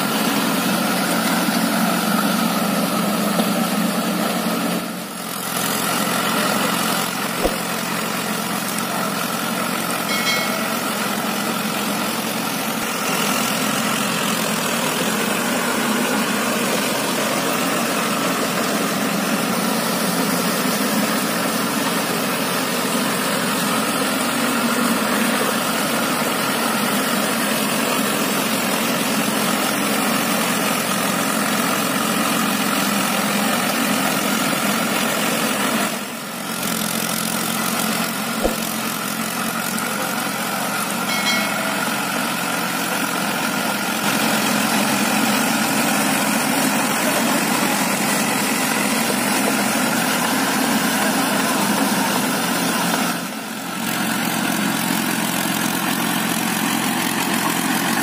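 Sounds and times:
tractor diesel engine running: 0:00.0 - 0:58.0.

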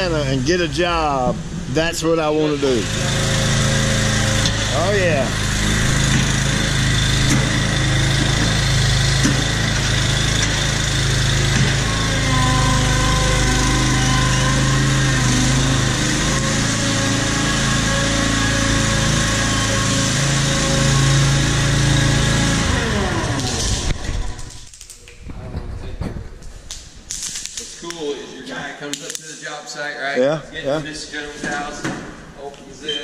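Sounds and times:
small gasoline engine running: 0:02.7 - 0:24.6.

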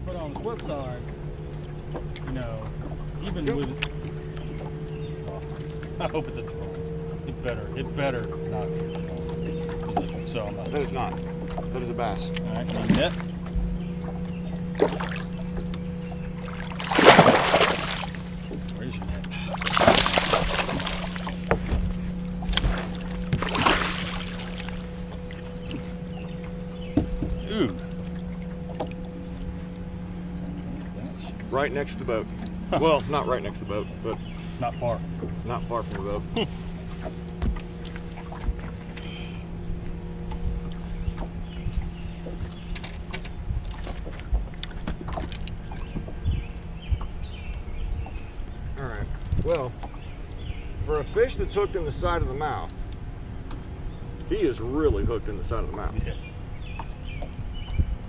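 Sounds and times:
steady low hum: 0:00.0 - 0:58.0
wind rumble on microphone: 0:00.0 - 0:58.0
fish splashing at the surface: 0:16.4 - 0:18.3, 0:19.3 - 0:21.8, 0:22.4 - 0:25.8
clicks and knocks on boat deck: 0:37.0 - 0:39.1, 0:42.2 - 0:47.1.

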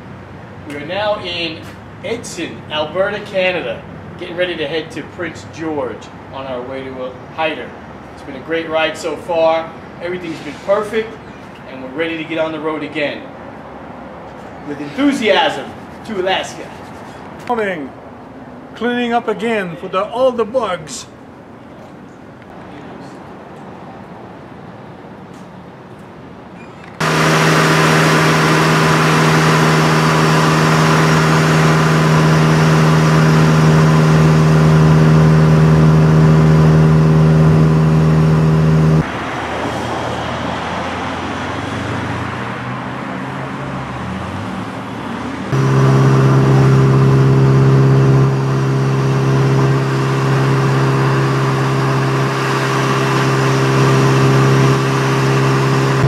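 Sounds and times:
wind and road noise: 0:09.4 - 0:18.8, 0:36.6 - 0:56.0
motorcycle engine droning: 0:27.0 - 0:39.1, 0:45.5 - 0:56.0.

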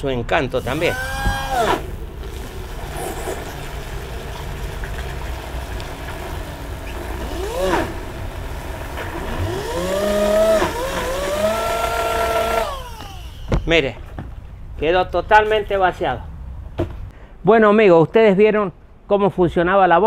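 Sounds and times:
drill motor humming and whining: 0:00.6 - 0:04.0, 0:06.5 - 0:13.9.

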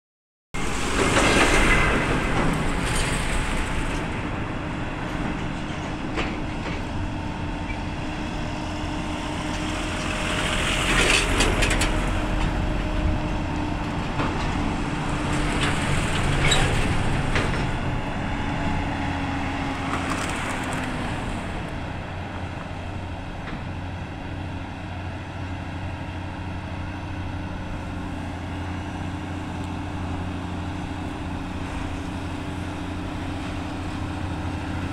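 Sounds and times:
vehicles whooshing past: 0:00.6 - 0:23.3
diesel truck engines rumbling: 0:00.6 - 0:34.9.

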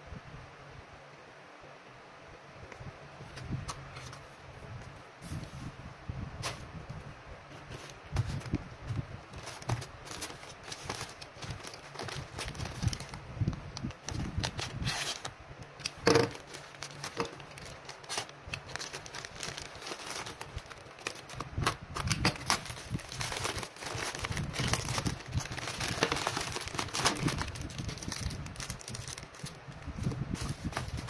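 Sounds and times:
bubble wrap rustling: 0:07.5 - 0:31.0
plastic mailer bag crinkling: 0:07.6 - 0:31.0.

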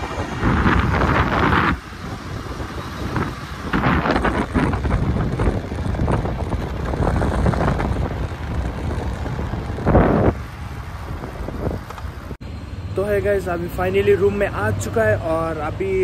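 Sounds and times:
wind rushing over microphone: 0:00.0 - 0:12.4
motorbike road and engine noise: 0:00.0 - 0:16.0.

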